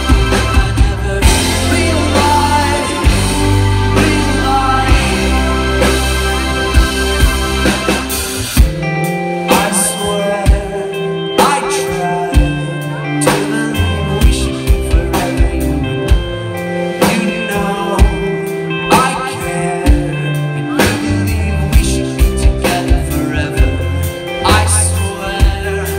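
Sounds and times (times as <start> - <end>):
male lead vocal: 0.0 - 6.4, 9.2 - 25.9
bass guitar: 0.0 - 25.9
drum kit steady beat: 0.0 - 25.9
electric guitars: 0.0 - 25.9
keyboard: 0.0 - 25.9.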